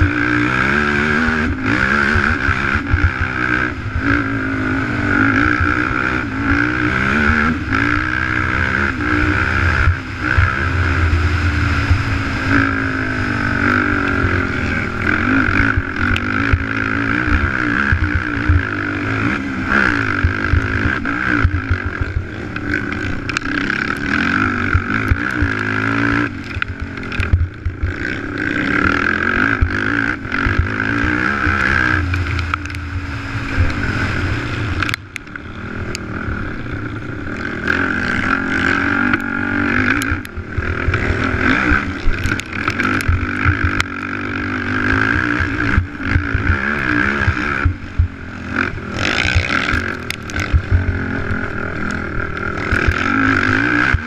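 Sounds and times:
quad engine revving: 0:00.0 - 0:54.0
knocks and rattles on dirt: 0:13.4 - 0:32.8, 0:37.3 - 0:54.0.

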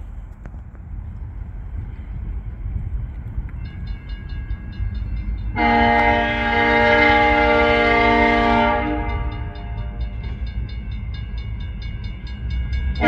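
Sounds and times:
locomotive air horn blast: 0:05.6 - 0:10.0.

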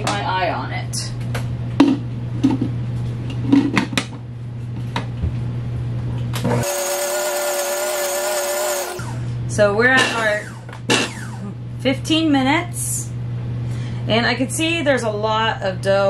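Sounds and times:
low steady hum: 0:00.0 - 0:16.0
stand mixer motor whine: 0:06.4 - 0:09.4, 0:10.1 - 0:11.5.

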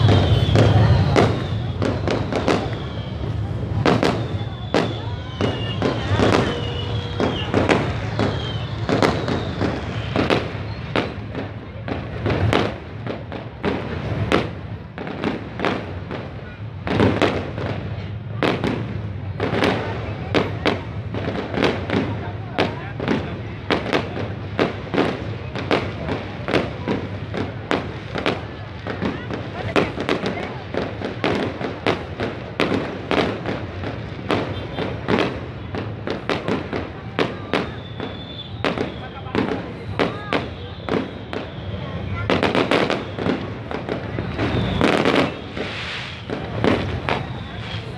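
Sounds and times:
faint thin whistle: 0:00.0 - 0:03.4, 0:04.0 - 0:10.9, 0:37.6 - 0:39.4
fireworks bangs: 0:00.0 - 0:47.9.

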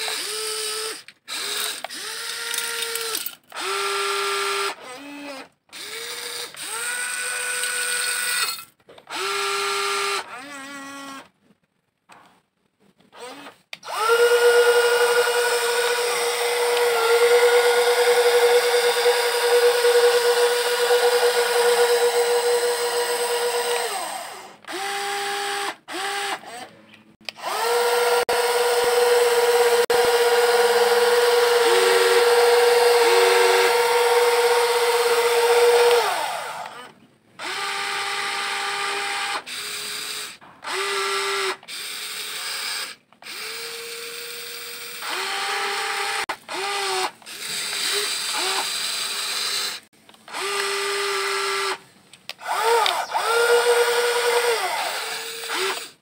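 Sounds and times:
electric motors whining: 0:13.2 - 0:26.3, 0:27.4 - 0:36.9.

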